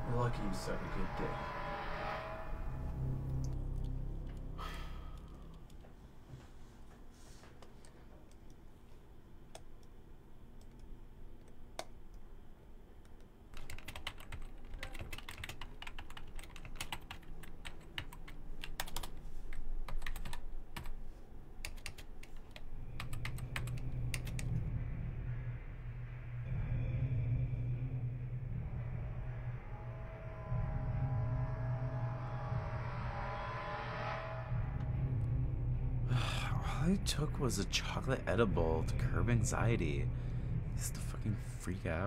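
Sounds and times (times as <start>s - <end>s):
low steady hum: 0.0s - 42.0s
typing on keyboard: 13.6s - 19.1s, 19.8s - 20.9s, 21.6s - 24.5s.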